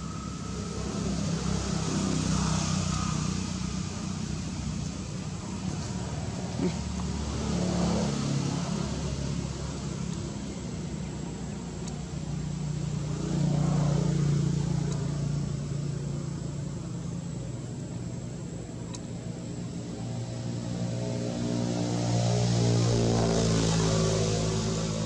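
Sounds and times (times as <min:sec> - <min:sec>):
vehicles passing engine hum: 0:00.0 - 0:25.0.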